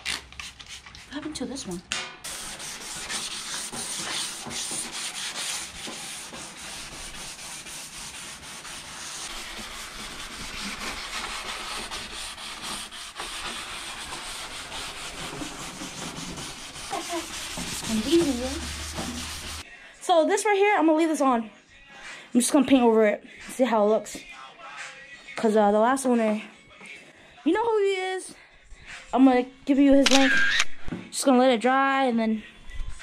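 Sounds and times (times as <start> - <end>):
hand sanding scraping strokes: 2.3 - 19.6.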